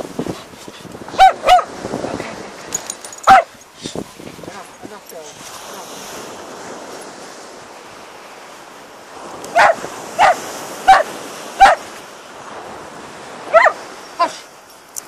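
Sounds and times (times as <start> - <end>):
dog barking: 1.1 - 1.7, 3.3 - 3.6, 9.5 - 11.9, 13.5 - 14.4.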